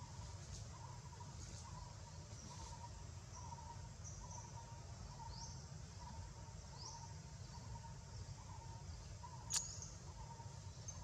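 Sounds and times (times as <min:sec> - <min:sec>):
sharp click: 0:09.5 - 0:09.9.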